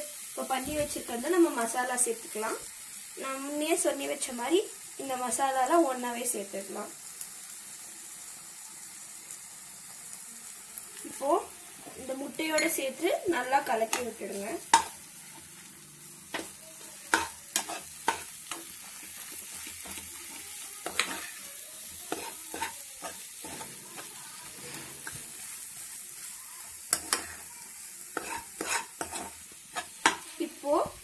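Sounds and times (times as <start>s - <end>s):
eggs sizzling in a pan: 0.0s - 31.0s
spoon scraping and clacking on pan: 12.0s - 15.6s, 16.3s - 25.7s, 26.8s - 27.5s, 28.1s - 30.3s.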